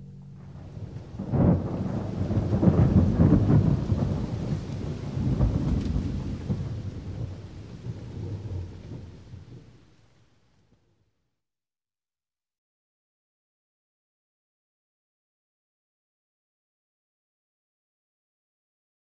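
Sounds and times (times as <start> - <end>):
rolling thunder: 0.0 - 10.1.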